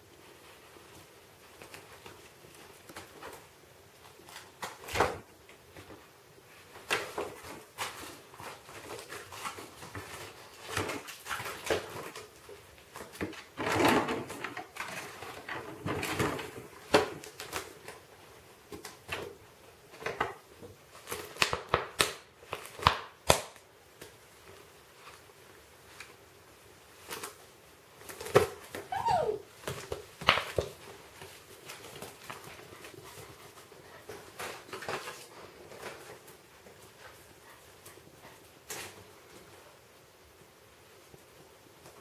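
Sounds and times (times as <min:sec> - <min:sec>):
animals scuffling knocks and scrabbling: 0:00.1 - 0:21.7.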